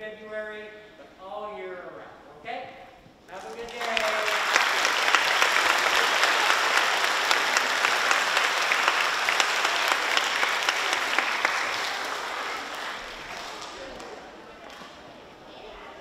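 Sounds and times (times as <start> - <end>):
audience applauding: 3.4 - 14.9.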